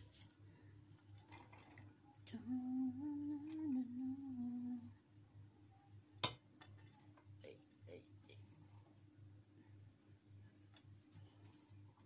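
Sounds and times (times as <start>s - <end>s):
person humming: 2.3s - 5.0s.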